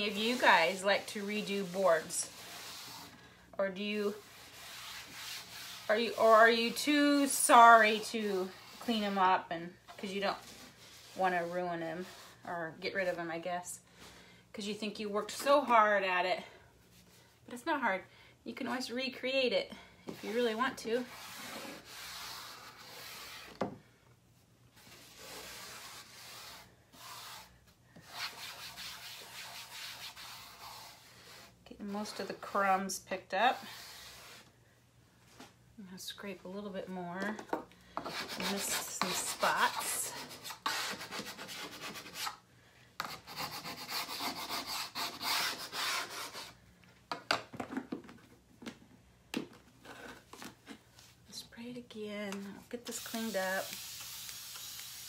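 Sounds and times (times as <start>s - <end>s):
wet wipe rubbing on chalkboard: 0.0s - 3.1s, 24.9s - 32.2s
scraper scraping chalkboard: 0.0s - 3.2s, 3.8s - 9.3s, 9.9s - 13.2s, 20.1s - 23.7s, 24.8s - 34.5s, 38.0s - 42.4s, 43.0s - 46.6s.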